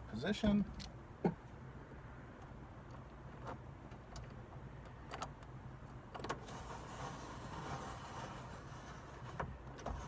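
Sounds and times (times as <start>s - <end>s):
window crank handle clicks: 3.4s - 5.5s
window glass rubbing hiss: 6.4s - 10.0s.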